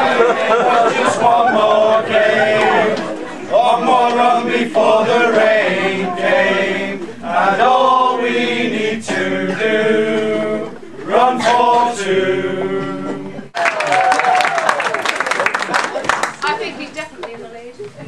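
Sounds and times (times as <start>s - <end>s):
men singing unaccompanied: 0.0s - 13.5s.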